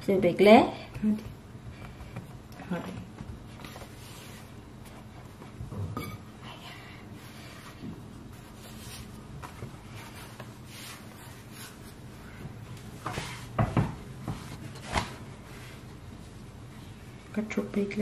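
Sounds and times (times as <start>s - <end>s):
dough rubbing on countertop: 1.2s - 5.4s, 7.2s - 12.2s, 13.0s - 15.9s
dough thumping on counter: 13.0s - 15.1s.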